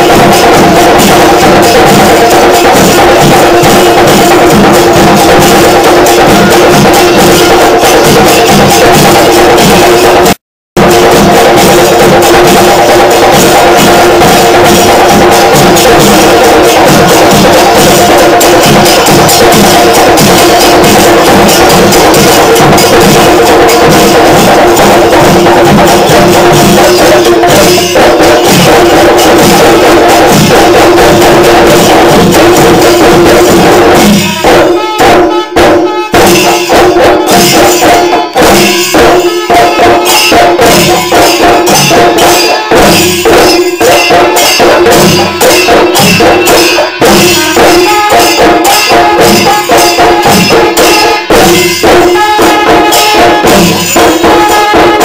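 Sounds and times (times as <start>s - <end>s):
drums beaten with sticks: 0.0s - 55.0s
hand cymbals jingling: 10.9s - 35.4s, 36.2s - 55.0s.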